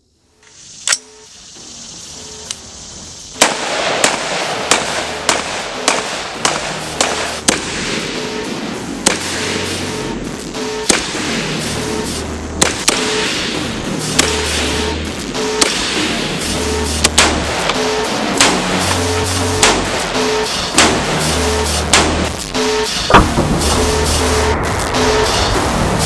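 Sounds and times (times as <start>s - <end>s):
rifle shots: 3.4s - 9.8s, 16.8s - 21.3s
background music with steady beat: 3.4s - 26.0s.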